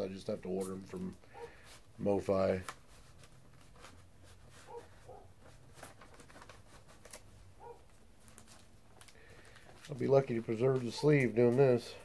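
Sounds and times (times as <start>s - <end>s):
paper sleeve rustling: 0.4s - 12.0s
soft clicks of vinyl record: 5.4s - 11.8s.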